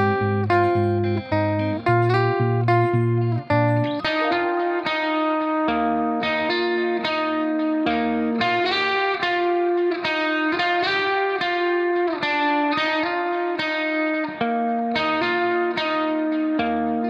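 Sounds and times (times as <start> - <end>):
guitar plucking a melody: 0.0 - 17.0.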